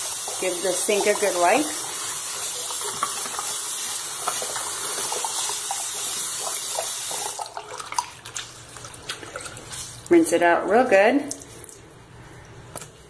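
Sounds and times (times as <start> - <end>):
faucet running into sink: 0.0 - 10.1.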